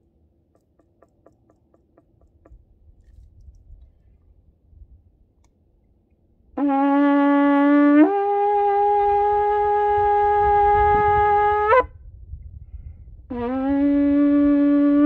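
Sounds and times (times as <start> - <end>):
shofar blast: 6.6 - 12.0, 13.3 - 15.0.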